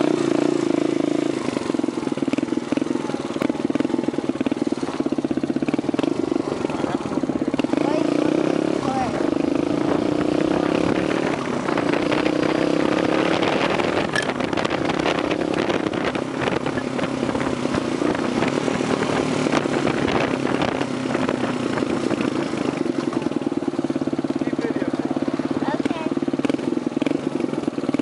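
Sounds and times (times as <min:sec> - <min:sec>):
motorcycle engine running: 0:00.0 - 0:28.0
wind rushing over microphone: 0:05.0 - 0:23.8.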